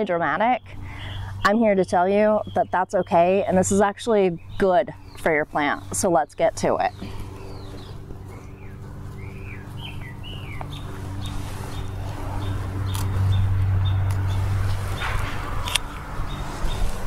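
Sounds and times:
small birds chirping: 0:00.0 - 0:17.0
steady low hum: 0:00.0 - 0:17.0
hand pruners snipping stems: 0:06.6 - 0:17.0.

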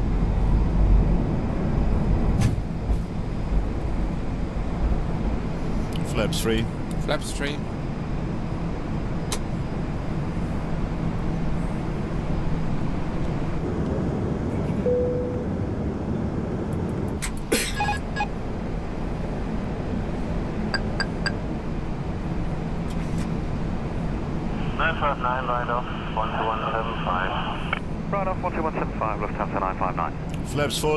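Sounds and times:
air and engine noise: 0:00.0 - 0:30.9
short tone: 0:14.8 - 0:15.5
short high beeps: 0:14.9 - 0:15.4.

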